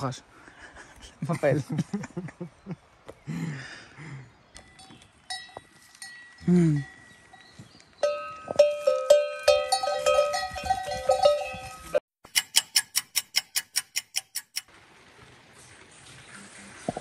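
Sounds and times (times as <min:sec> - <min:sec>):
horse collar bell clanging: 0:04.6 - 0:07.3, 0:08.0 - 0:14.5
sharp clicks: 0:12.3 - 0:14.7.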